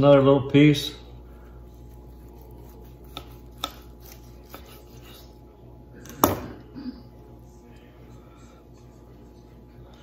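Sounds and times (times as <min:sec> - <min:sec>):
knife slicing meat: 0:01.7 - 0:05.5.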